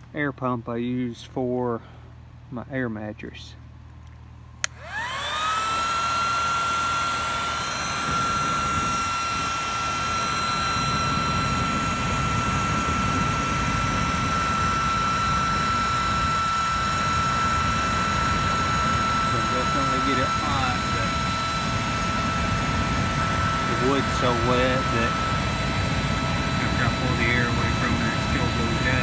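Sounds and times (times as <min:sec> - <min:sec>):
pump switch click: 0:04.6 - 0:04.8
air pump motor whining: 0:04.6 - 0:29.0
rushing air: 0:07.1 - 0:29.0.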